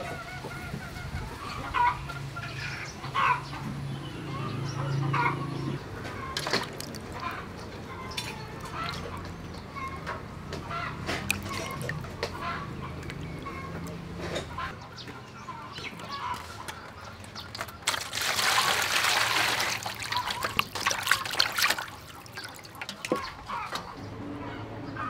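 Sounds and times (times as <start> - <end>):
chickens clucking: 0.0 - 25.0
hand washing meat in water: 6.3 - 9.8, 11.2 - 14.2, 16.0 - 23.4
rush of splashing water: 6.4 - 7.4, 11.2 - 12.2, 17.8 - 23.2.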